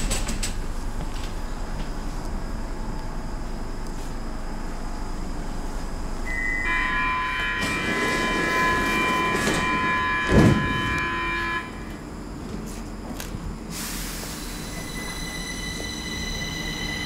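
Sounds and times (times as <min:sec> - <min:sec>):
metro train rumbling: 0:00.0 - 0:17.0
brake squeal: 0:14.3 - 0:17.0.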